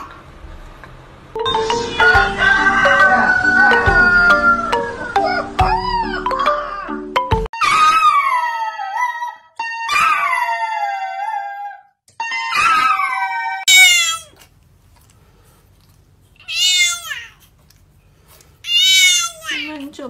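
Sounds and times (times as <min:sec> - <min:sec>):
dog howling: 0:02.0 - 0:14.3
cat meowing: 0:12.5 - 0:14.4, 0:16.4 - 0:17.4, 0:18.6 - 0:19.8.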